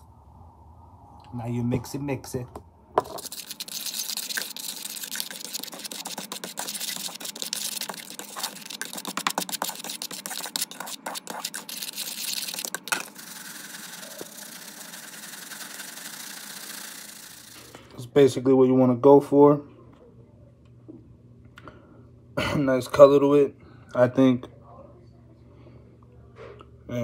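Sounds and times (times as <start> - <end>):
fork stirring spices in plastic cup: 3.0 - 17.8.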